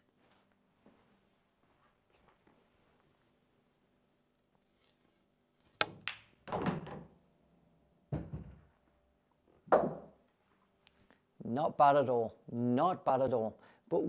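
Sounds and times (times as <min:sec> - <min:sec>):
ball dropping into pocket thud: 0:05.8 - 0:07.2, 0:08.1 - 0:08.7, 0:09.7 - 0:10.2
ball hitting cushion: 0:09.7 - 0:10.2.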